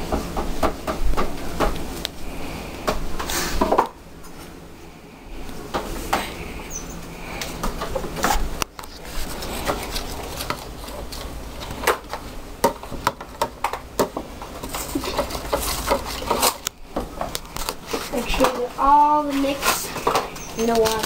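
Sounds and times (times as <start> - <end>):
metal spoon stirring in plastic container: 14.4 - 16.7.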